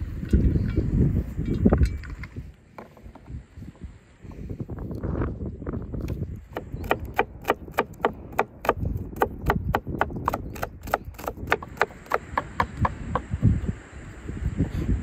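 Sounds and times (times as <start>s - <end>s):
knife chopping on wooden board: 6.5s - 13.3s.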